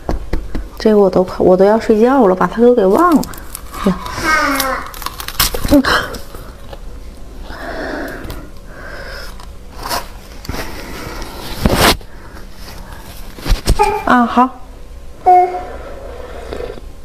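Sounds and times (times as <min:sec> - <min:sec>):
crunching and chewing: 0:03.1 - 0:06.9.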